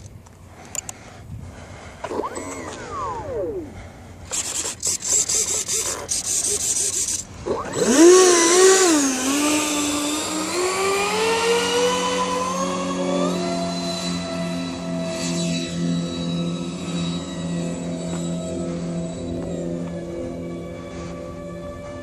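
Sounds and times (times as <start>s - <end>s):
electric fans whining: 0.0s - 22.0s.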